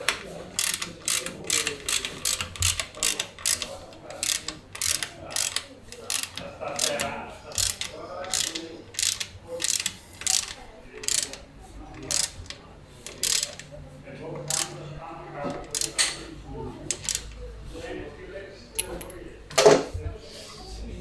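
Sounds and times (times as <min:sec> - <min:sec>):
ratchet wrench clicking: 0:00.1 - 0:13.7, 0:14.5 - 0:14.7, 0:15.5 - 0:16.1, 0:16.9 - 0:17.4.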